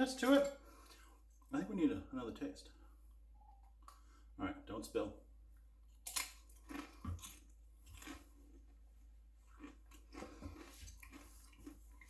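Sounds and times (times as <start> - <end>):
pretzel bitten with sharp crack: 6.0 - 8.2
chewing crunches: 6.0 - 8.8, 9.4 - 12.0.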